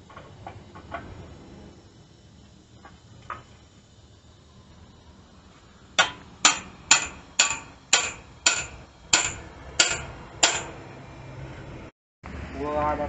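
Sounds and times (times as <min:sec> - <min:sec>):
hammer striking chisel on metal: 0:06.0 - 0:10.9.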